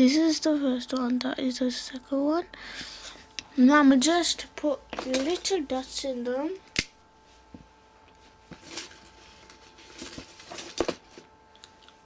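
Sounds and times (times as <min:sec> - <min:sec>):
paper rustling: 0:08.5 - 0:11.3.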